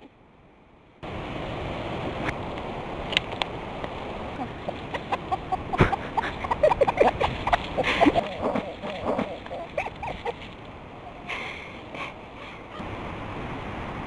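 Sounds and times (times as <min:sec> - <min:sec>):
wind on microphone: 0:04.1 - 0:11.3
chickens clucking: 0:04.4 - 0:10.5.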